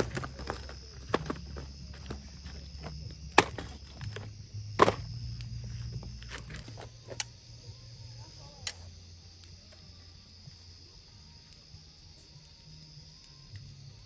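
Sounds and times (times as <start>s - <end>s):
firewood being chopped: 0.0s - 7.3s.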